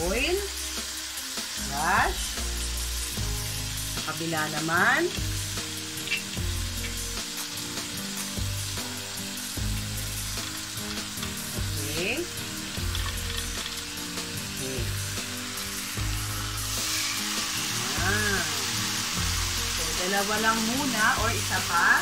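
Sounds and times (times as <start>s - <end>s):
steak sizzling on griddle: 0.0s - 22.0s.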